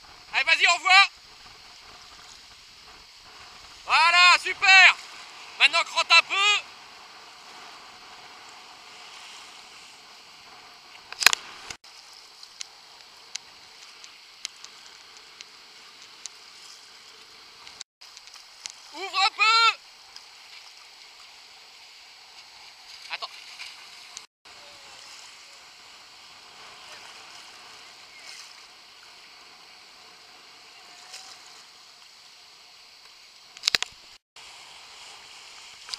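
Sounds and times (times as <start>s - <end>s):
choppy water: 0.0s - 35.9s
waves washing at shoreline: 0.0s - 35.9s
small ticks: 12.3s - 18.8s
faint click: 33.0s - 34.0s.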